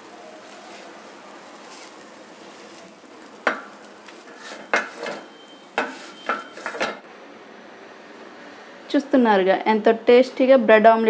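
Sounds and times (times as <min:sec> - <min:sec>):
omelette sizzling: 0:00.0 - 0:06.9
metal spatula scraping on tawa: 0:01.6 - 0:07.0.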